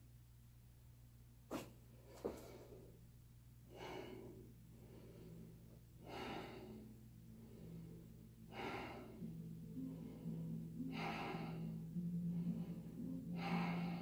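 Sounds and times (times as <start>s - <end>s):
steady low hum: 0.0s - 14.0s
person breathing deeply: 3.7s - 14.0s.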